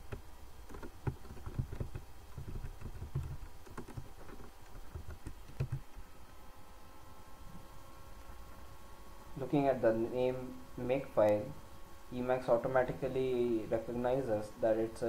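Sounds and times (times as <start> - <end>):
computer keyboard clicks: 0.1 - 6.0.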